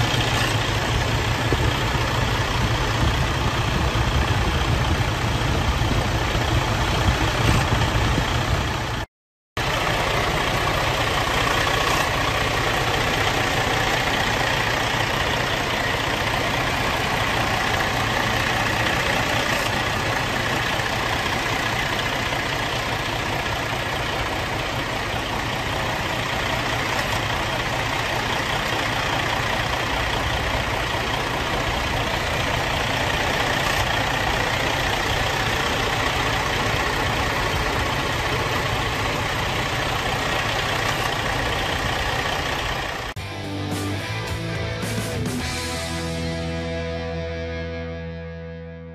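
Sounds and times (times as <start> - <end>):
diesel engine idling: 0.0 - 48.1.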